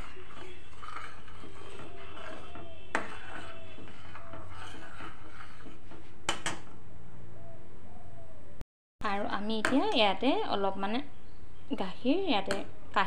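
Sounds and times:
ladle scraping pot bottom: 0.0 - 6.8.

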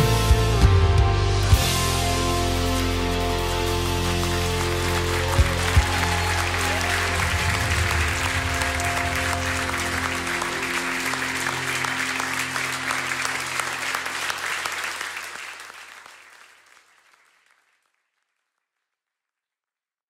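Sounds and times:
closing music with low chords: 0.0 - 14.0
applause: 3.3 - 19.1.

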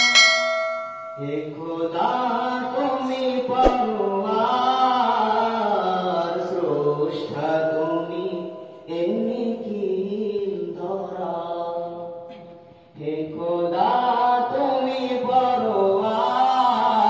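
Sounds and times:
short knock: 3.6 - 3.9.

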